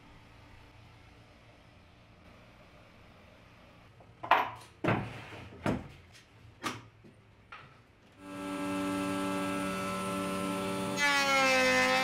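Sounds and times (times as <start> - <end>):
router motor running: 8.2 - 12.0.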